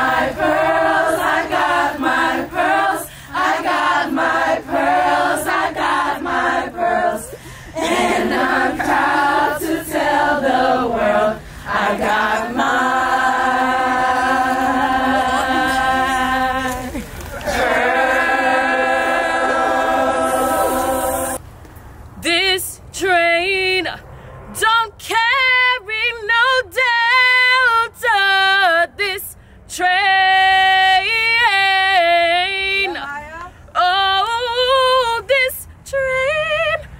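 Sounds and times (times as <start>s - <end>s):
woman singing a cappella: 0.0s - 21.4s, 22.2s - 24.0s, 24.6s - 36.9s
women chanting together: 0.0s - 21.4s.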